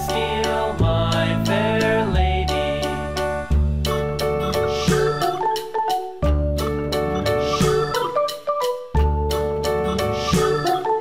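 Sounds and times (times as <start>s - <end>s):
instrumental music with bright melody: 0.0s - 11.0s.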